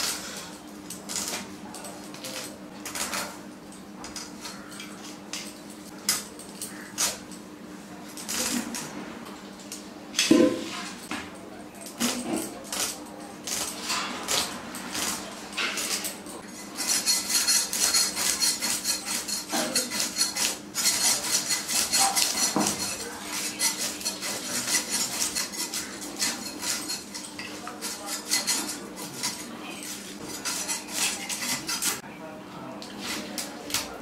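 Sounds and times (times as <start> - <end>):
knife cutting food: 12.0 - 32.0.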